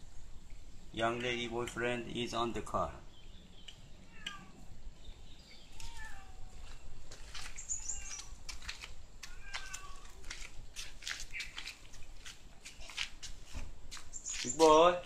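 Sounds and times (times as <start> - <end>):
cat chirping: 4.0 - 4.6, 5.7 - 6.5, 7.6 - 8.4, 9.3 - 10.0
cat meowing: 4.1 - 4.6, 5.8 - 6.6, 9.2 - 10.2.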